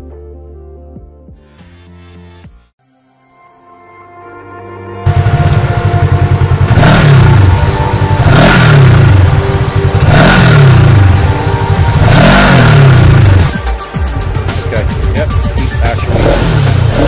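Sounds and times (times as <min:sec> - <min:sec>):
engine revving: 0:05.0 - 0:13.7, 0:14.6 - 0:17.0.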